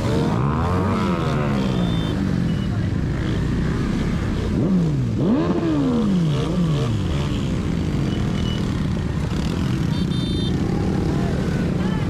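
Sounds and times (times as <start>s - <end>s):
vehicle engine revving: 0.0s - 8.1s
wind and road noise: 0.0s - 12.0s.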